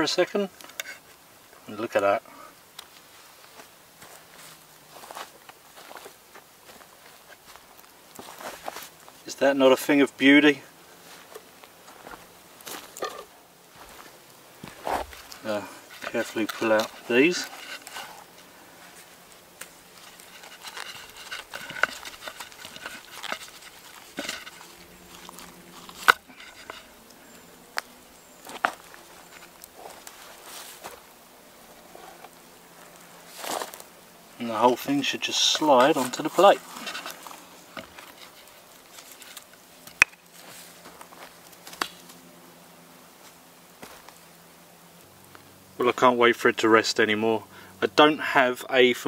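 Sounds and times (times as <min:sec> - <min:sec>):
food handling on wooden plate: 0:12.7 - 0:14.0, 0:14.6 - 0:27.8.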